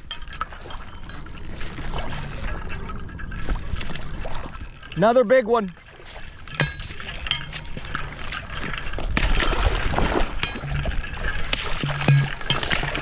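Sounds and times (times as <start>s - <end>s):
fish splashing at water surface: 5.8s - 13.0s.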